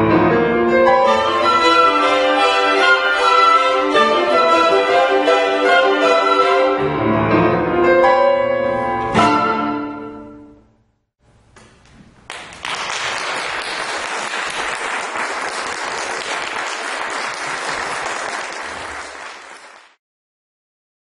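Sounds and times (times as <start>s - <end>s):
chamber ensemble chord: 0.2s - 10.6s
audience applauding: 12.3s - 20.0s.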